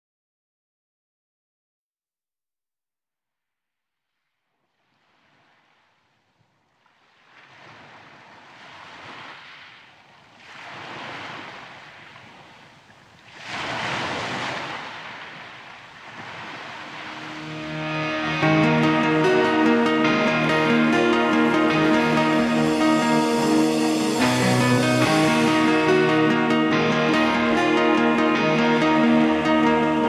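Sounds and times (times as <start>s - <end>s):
sea waves washing onto shore: 6.8s - 18.1s
music: 17.0s - 30.0s.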